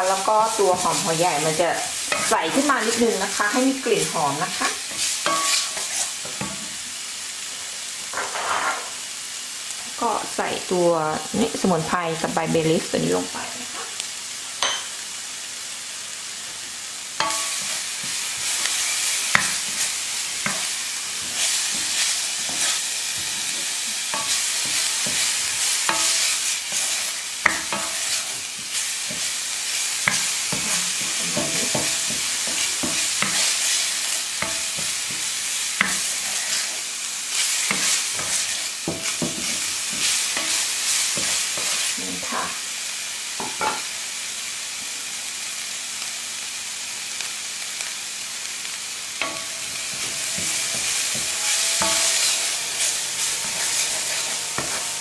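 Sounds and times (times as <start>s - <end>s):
bacon and onion sizzling in pan: 0.0s - 55.0s
wooden spatula scraping pan: 0.1s - 6.6s, 17.2s - 42.4s, 49.2s - 55.0s.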